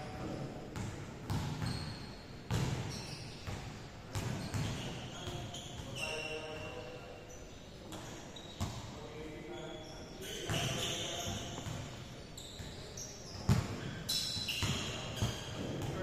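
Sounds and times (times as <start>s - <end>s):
basketballs bouncing on wooden floor: 0.2s - 6.0s, 13.4s - 16.0s
shoe squeaks: 1.3s - 8.8s, 9.4s - 16.0s.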